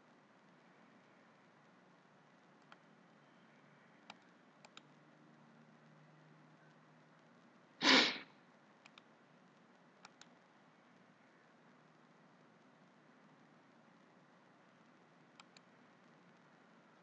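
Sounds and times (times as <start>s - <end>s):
low hiss: 0.0s - 17.0s
computer mouse clicks: 2.6s - 2.9s, 4.0s - 5.0s, 8.8s - 9.1s, 10.0s - 10.4s, 15.3s - 16.2s
sharp sniff: 7.8s - 8.3s.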